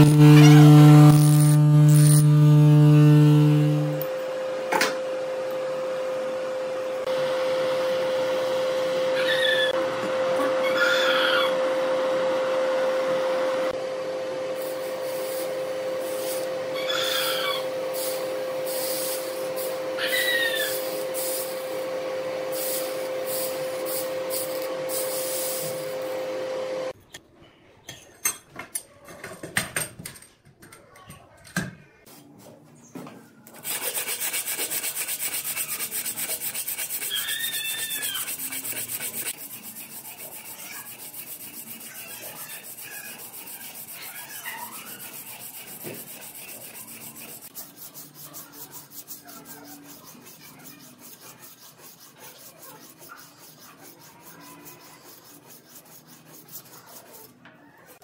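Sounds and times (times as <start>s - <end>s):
abrasive tool rasping on knife blade: 33.6s - 57.3s.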